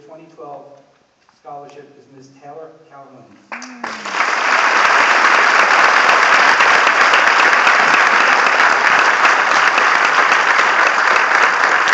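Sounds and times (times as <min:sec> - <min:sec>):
audience applauding: 0:03.5 - 0:11.9.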